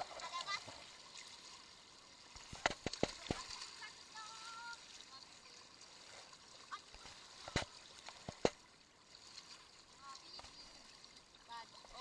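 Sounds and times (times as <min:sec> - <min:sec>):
water sloshing with hand net: 0:02.3 - 0:05.0, 0:05.8 - 0:09.7.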